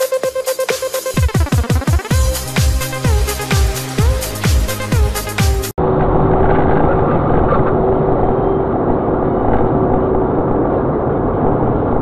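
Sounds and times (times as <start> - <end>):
moving car road noise: 5.7 - 12.0.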